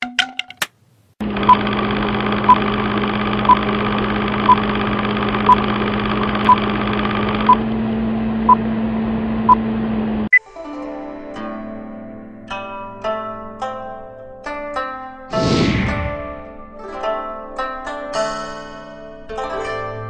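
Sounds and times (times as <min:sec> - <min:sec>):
film projector whirring: 0:01.2 - 0:10.3.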